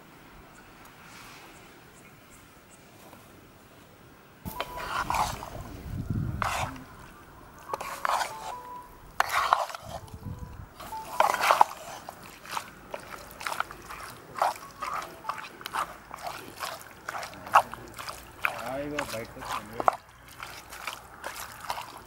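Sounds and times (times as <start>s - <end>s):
spatula mixing meat in pan: 4.5s - 5.6s, 6.3s - 7.0s, 7.6s - 10.2s, 10.8s - 22.0s.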